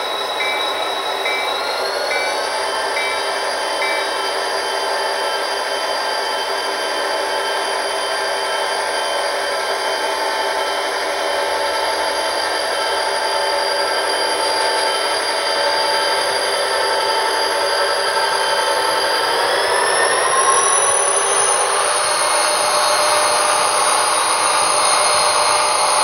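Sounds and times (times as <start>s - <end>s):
model train motor and wheels: 0.0s - 14.4s.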